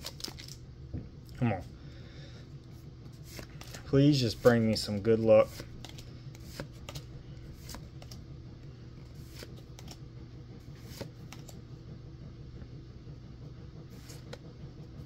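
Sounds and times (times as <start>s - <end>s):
low steady hum: 0.0s - 15.0s
trading cards flipped by hand: 3.2s - 3.8s, 5.5s - 8.2s, 9.2s - 10.0s, 10.8s - 11.6s.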